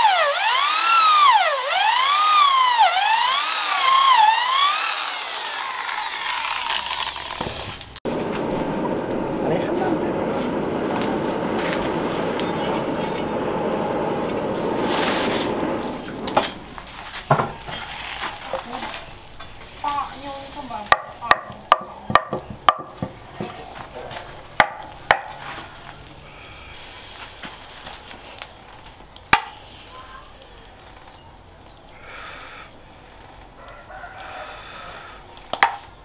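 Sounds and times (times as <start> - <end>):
forge fire rushing: 7.9 - 17.2
hot blade quenching sizzle: 10.6 - 16.4, 29.3 - 30.6.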